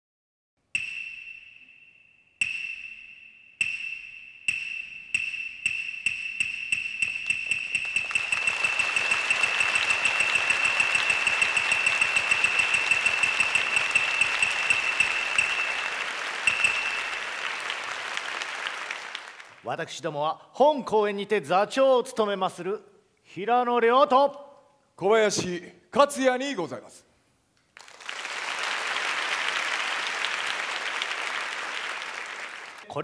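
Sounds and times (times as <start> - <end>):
wooden clappers clacking: 4.5 - 17.2
audience applause: 7.9 - 19.6, 27.8 - 32.9.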